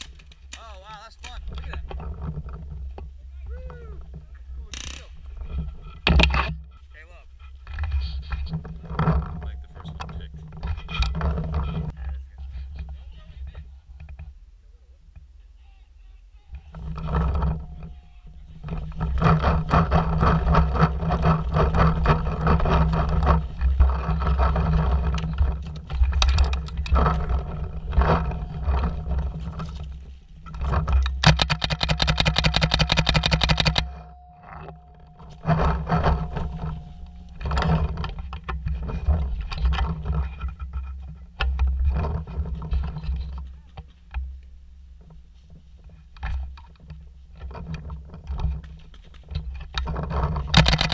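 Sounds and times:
paintball marker rapid firing: 31.2 - 33.8, 50.6 - 50.9
camera handling knocks and scrapes: 48.6 - 50.9.

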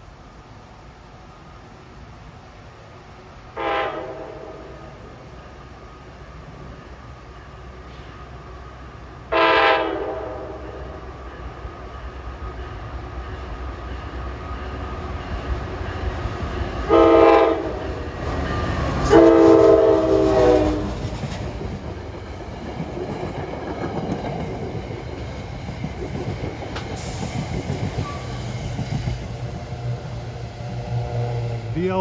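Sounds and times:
train coaches rumbling and clacking: 0.0 - 32.0
train air horn blasts: 3.6 - 5.1, 9.3 - 11.1, 16.9 - 17.8, 19.0 - 21.0, 30.8 - 31.7.

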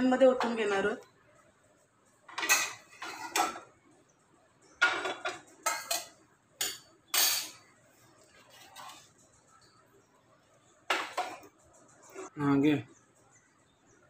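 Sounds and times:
metal cookware clattering: 0.3 - 1.0, 2.3 - 3.8, 4.7 - 7.7, 8.4 - 9.3, 10.9 - 12.3.

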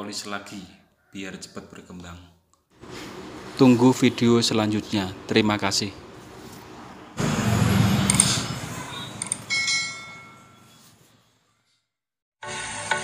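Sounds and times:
noisy whoosh: 7.1 - 9.4
clicks: 9.2 - 9.5
bell chime: 9.2 - 10.9
music: 12.4 - 13.0.

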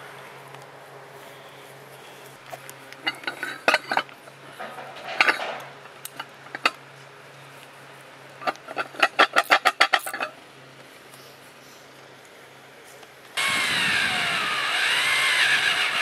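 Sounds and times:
metal knocks and clanks: 3.0 - 5.9.

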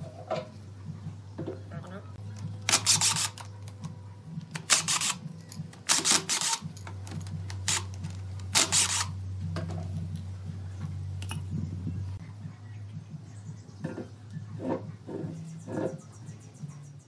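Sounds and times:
steady low hum: 0.0 - 17.0
cordless driver driving screws: 4.5 - 5.2, 8.5 - 9.1.

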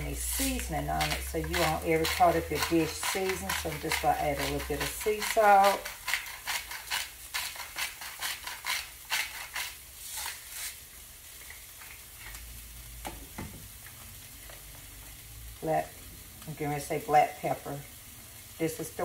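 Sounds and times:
spoon scraping a pan: 0.0 - 10.6
vegetables sizzling in a frying pan: 0.0 - 19.0.

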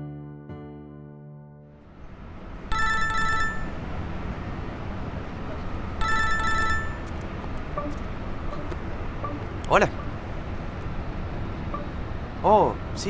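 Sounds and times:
low background rumble: 1.8 - 13.0
mobile phone ringing: 2.7 - 3.8, 6.0 - 10.2.

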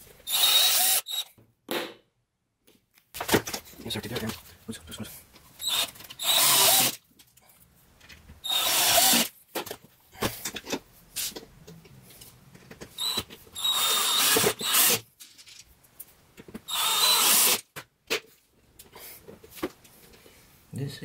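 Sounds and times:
cordless drill whining: 0.3 - 1.3, 5.6 - 7.0, 8.4 - 9.3, 13.0 - 15.0, 16.7 - 17.6.

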